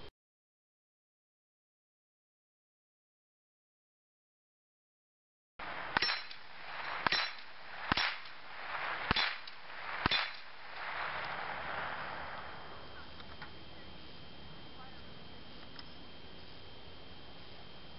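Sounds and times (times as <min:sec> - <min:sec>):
rifle shots: 0:05.6 - 0:13.1
bullet clanging steel plate: 0:06.0 - 0:08.4, 0:09.1 - 0:10.5.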